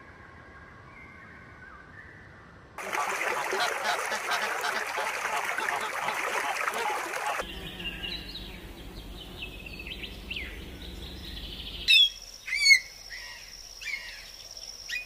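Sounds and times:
songbirds chirping: 0:00.4 - 0:15.0
ducks quacking: 0:02.8 - 0:08.7.

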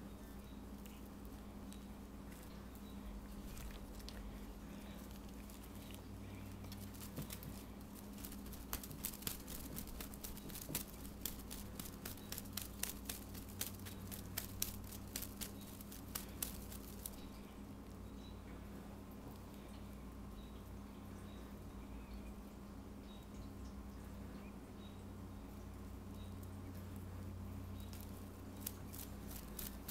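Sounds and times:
faint steady hum: 0:00.0 - 0:29.9
cat paws tapping tabletop: 0:06.7 - 0:07.6.

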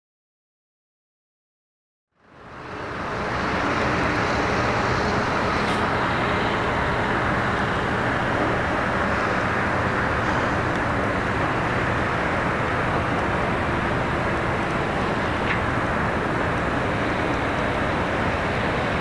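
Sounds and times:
constant rushing noise: 0:02.2 - 0:19.0
excavator diesel engine hum: 0:02.2 - 0:19.0.

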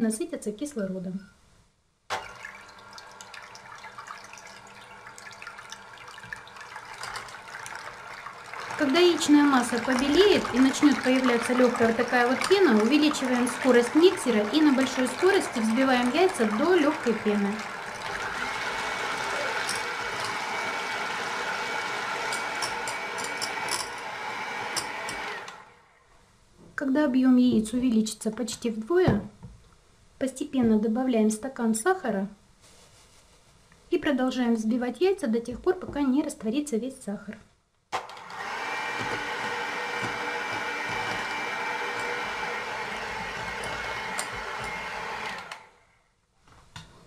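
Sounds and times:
eggs sloshing in metal pot: 0:02.1 - 0:20.7
hand mixer motor whirring: 0:07.0 - 0:25.7, 0:38.0 - 0:45.7.

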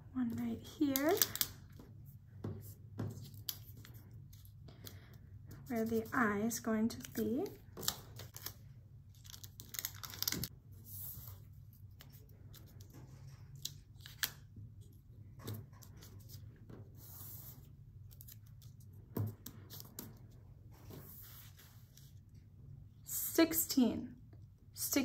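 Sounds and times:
paper rustling and crackling: 0:07.0 - 0:14.5.

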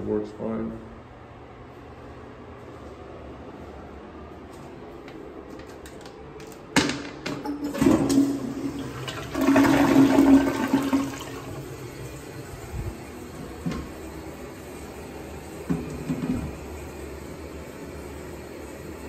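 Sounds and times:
toilet flushing: 0:07.3 - 0:19.0.

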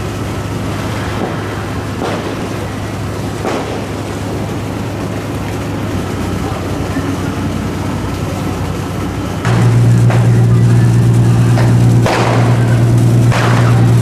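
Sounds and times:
diesel engines humming: 0:00.0 - 0:14.0
rumbling outdoor noise: 0:00.0 - 0:14.0
faint sharp cracks: 0:00.9 - 0:04.3, 0:09.5 - 0:14.0.

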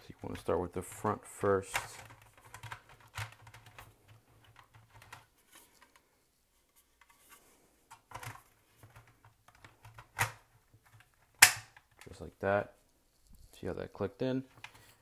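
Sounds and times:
plastic scraping and clicking: 0:00.7 - 0:06.1, 0:07.0 - 0:12.2, 0:14.4 - 0:15.0.

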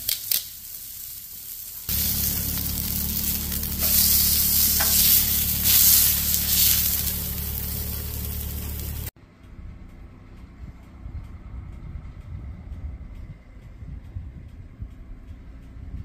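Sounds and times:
steak sizzling on a griddle: 0:00.0 - 0:09.1
steady low hum: 0:01.9 - 0:16.0.

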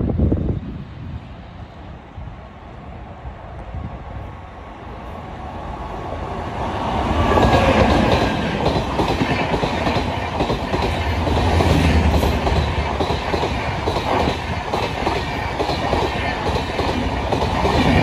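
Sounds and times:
train passing at speed: 0:00.0 - 0:18.0
wheels clacking over rail joints: 0:07.1 - 0:18.0.

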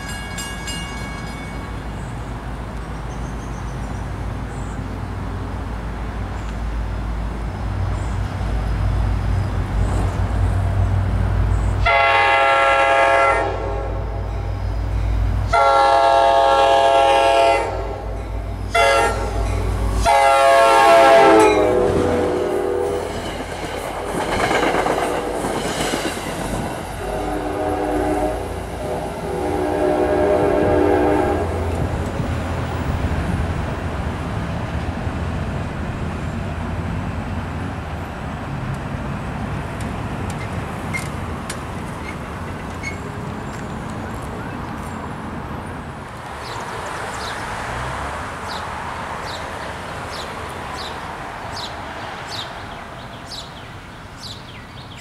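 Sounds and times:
rail car wheel clatter: 0:00.0 - 0:13.2, 0:14.2 - 0:55.0
train passing: 0:00.0 - 0:55.0
locomotive air horn: 0:11.8 - 0:14.2, 0:15.5 - 0:23.2, 0:27.0 - 0:31.9.

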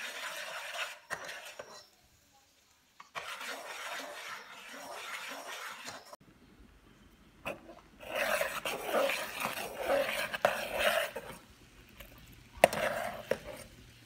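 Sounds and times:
ladle scraping metal pot: 0:00.0 - 0:02.0, 0:03.1 - 0:06.2, 0:07.5 - 0:11.4, 0:12.6 - 0:13.8.

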